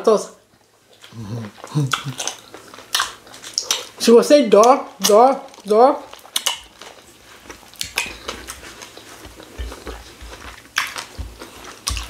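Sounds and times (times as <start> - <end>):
chewing: 0.6 - 12.0
lip smacks: 0.9 - 4.0, 6.2 - 12.0
finger licking: 1.0 - 3.9
wet mouth clicks: 1.0 - 3.9.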